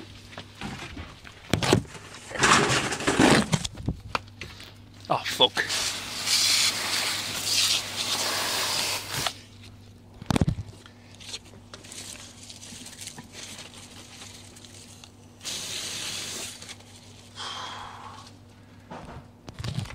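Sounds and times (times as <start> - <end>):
water spraying from hose: 5.6 - 9.3, 15.4 - 16.7.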